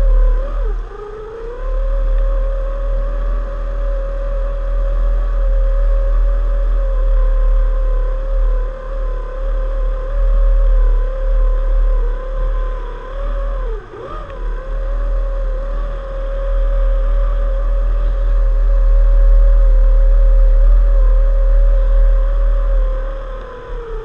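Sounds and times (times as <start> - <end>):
deep rumble: 0.0 - 24.0
outboard motor high-pitched whine: 0.0 - 24.0.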